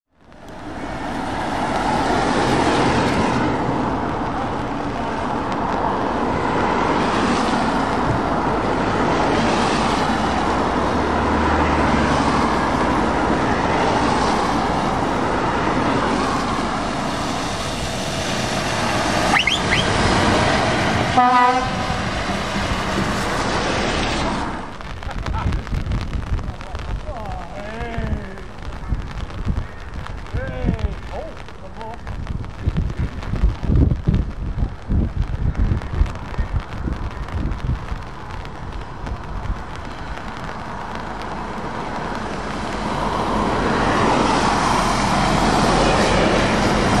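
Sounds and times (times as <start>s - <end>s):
tyres hissing on wet road: 0.2s - 47.0s
air horn blast: 21.1s - 22.0s.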